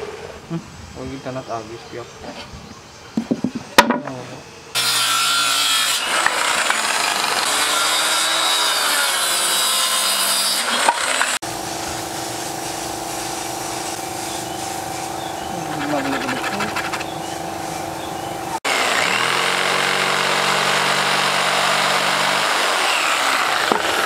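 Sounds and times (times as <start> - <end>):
knocks of board handled: 3.2 - 4.1, 23.7 - 24.0
circular saw cutting plywood: 4.7 - 17.9, 18.5 - 24.0.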